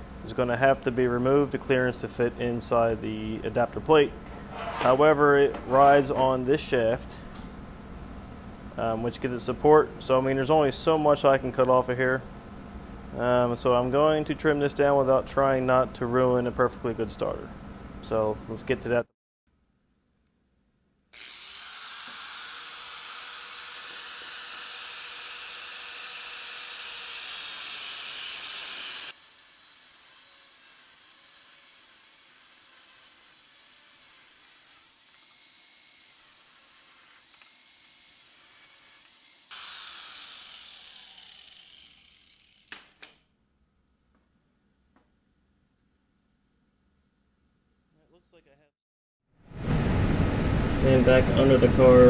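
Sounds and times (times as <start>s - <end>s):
angle grinder cutting metal: 21.2s - 42.9s.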